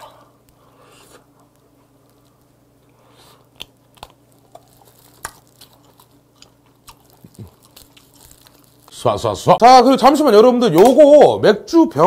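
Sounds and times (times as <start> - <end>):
wet chewing mouth clicks: 3.5 - 9.0.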